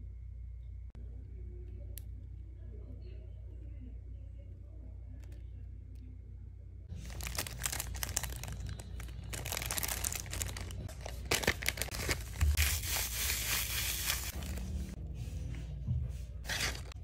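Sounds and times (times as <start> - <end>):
plastic bags crinkling: 6.9 - 14.8.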